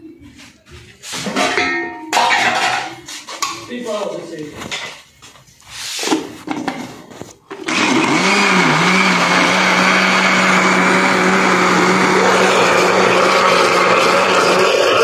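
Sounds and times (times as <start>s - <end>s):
electric blender running: 7.6s - 15.0s.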